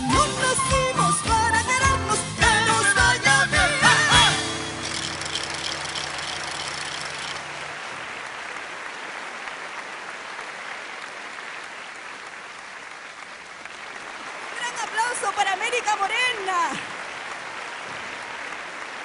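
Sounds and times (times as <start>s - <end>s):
audience applauding: 3.9s - 19.0s.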